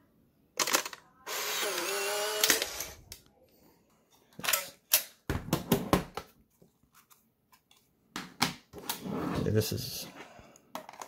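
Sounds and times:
camera motor whirring: 1.3 - 3.0.

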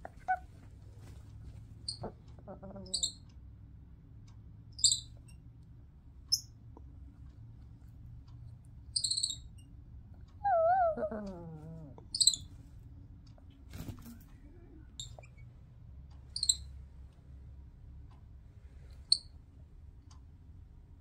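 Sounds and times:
monkey high-pitched chirps: 0.1 - 0.5, 1.9 - 3.2, 4.8 - 5.1, 9.0 - 9.5, 10.4 - 12.5, 16.4 - 16.7.

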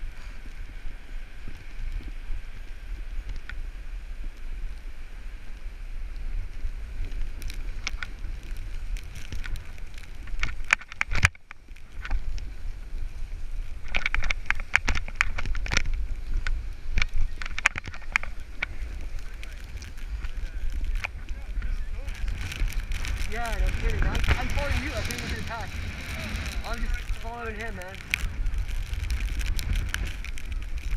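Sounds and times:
wind rushing over microphone: 0.0 - 30.9
ski edges scraping snow: 12.0 - 30.9.

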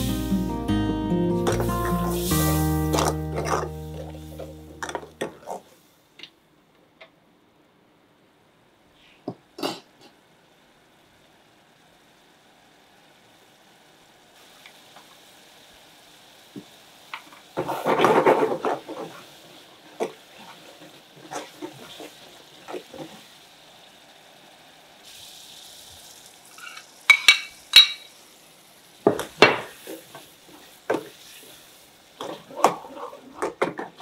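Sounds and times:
faint sizzle: 0.0 - 6.2, 7.4 - 34.0
ladle stirring and scraping pot: 1.5 - 5.7, 32.2 - 34.0.

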